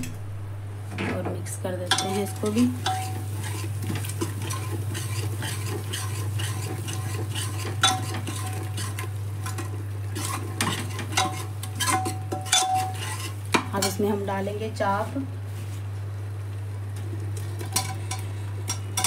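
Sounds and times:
gravy sizzling: 0.6 - 19.0
spoon clinking against pot: 1.9 - 3.2, 7.8 - 8.2, 11.1 - 14.0
spoon stirring and scraping pot: 1.9 - 14.3, 17.4 - 19.0.

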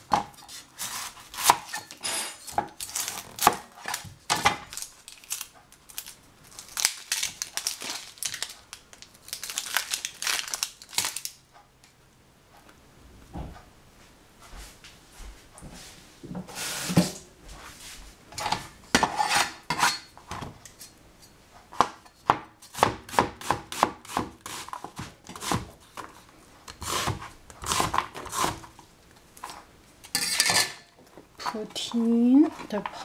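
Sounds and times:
knife chopping on cutting board: 0.1 - 1.8, 21.8 - 25.7.

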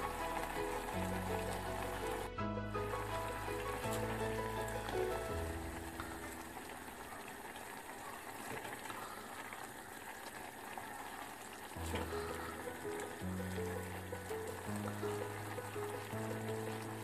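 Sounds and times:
background music: 0.0 - 6.7, 11.8 - 17.0
noodles boiling and bubbling: 0.0 - 17.0.

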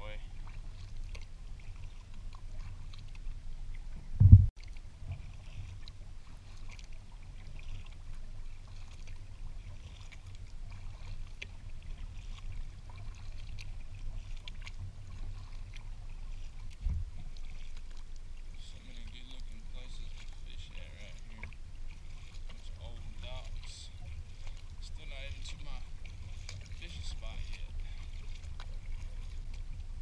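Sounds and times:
paddle drips and splashes: 0.0 - 30.0
steady low rumble: 1.4 - 6.4, 11.3 - 30.0
loud low thump: 4.2 - 4.5.

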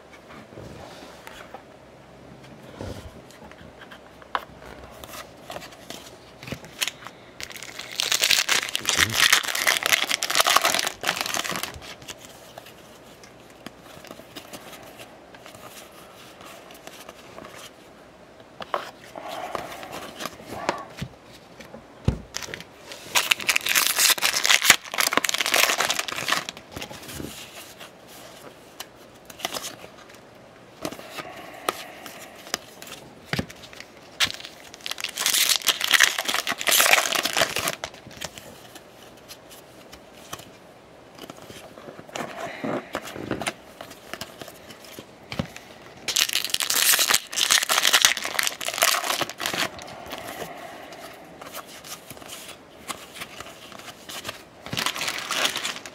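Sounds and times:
foil wrappers tearing and crinkling: 6.7 - 12.3, 22.3 - 27.6, 33.6 - 38.8, 41.2 - 50.6, 51.6 - 55.9
cards being handled: 30.8 - 55.9.

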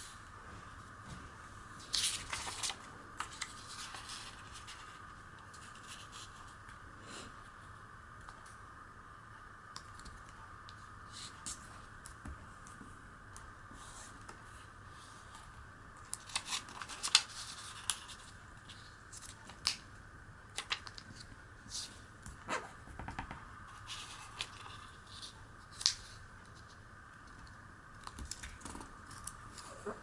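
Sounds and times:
paper crackling while folded: 1.8 - 6.6, 16.0 - 19.8, 20.5 - 22.0, 23.7 - 26.8.

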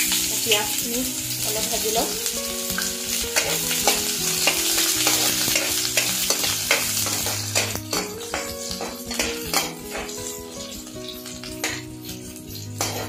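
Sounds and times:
onions sizzling in hot oil: 0.0 - 13.0
metal ladle scraping a pan: 2.8 - 13.0.

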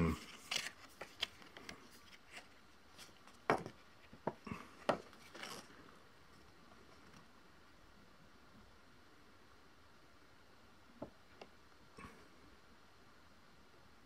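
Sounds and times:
card rubbing: 0.2 - 3.2.

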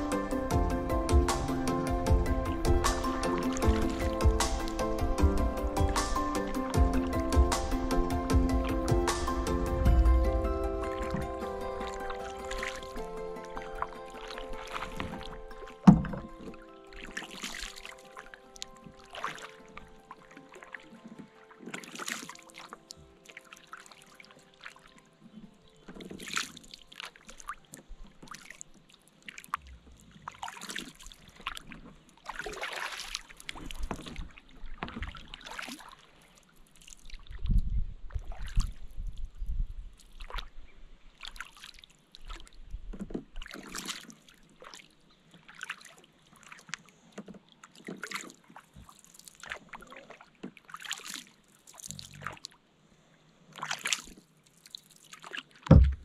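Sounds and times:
water dripping off paddle: 0.0 - 24.9, 25.9 - 37.4
background music: 0.0 - 27.0
paddle strokes splashing water: 0.0 - 37.5, 38.1 - 39.2, 40.0 - 52.6, 53.5 - 56.0
low rumble: 6.8 - 12.0.

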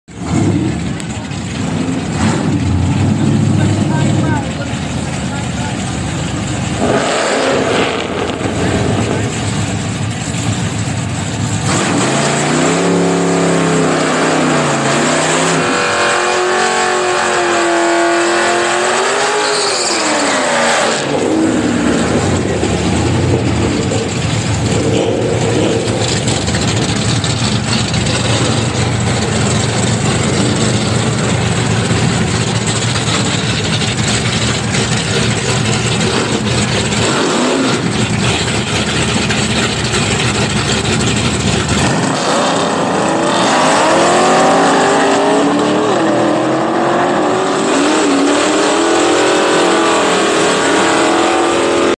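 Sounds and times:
car engines idling: 0.1 - 11.8, 21.0 - 45.9
drag car engines revving: 0.1 - 51.9.

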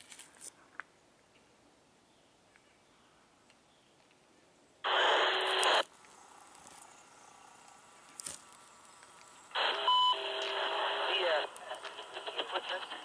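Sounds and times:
radio squelch static bursts: 4.8 - 13.0.

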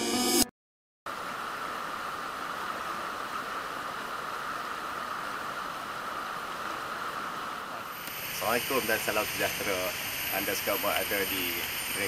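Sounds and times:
stream rushing over rapids: 1.1 - 12.0.

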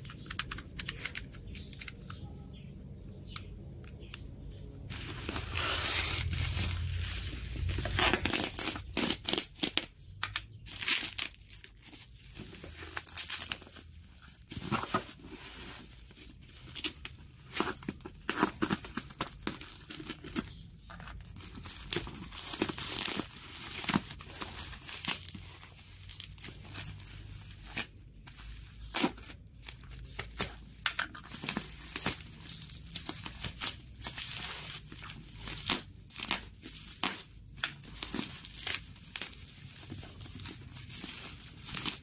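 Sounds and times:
plastic crinkling: 4.8 - 10.0, 10.6 - 42.0
packing tape ripping: 5.0 - 9.9, 21.3 - 26.6.

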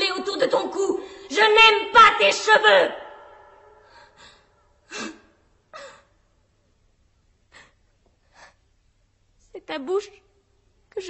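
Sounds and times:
woman gasping: 1.0 - 1.3.

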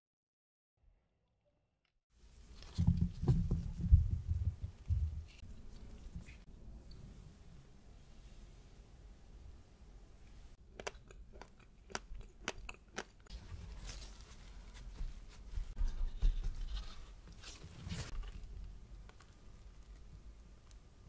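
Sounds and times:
paper towel rustling: 13.3 - 18.2.

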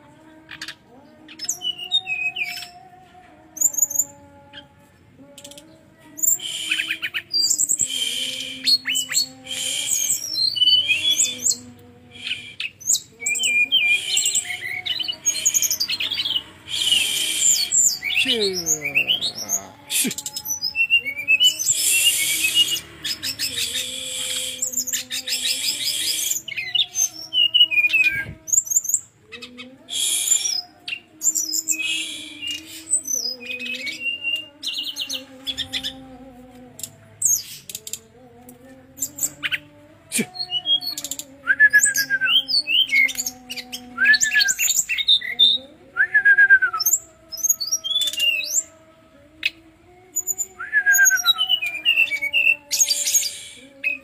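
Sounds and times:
bird chirps and trills: 5.4 - 36.0.

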